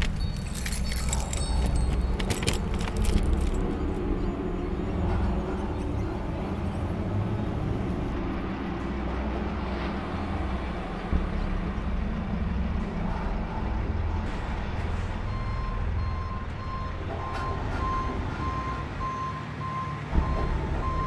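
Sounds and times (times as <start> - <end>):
truck engine rumbling: 0.0 - 21.0
reversing alarm beeping: 15.2 - 21.0.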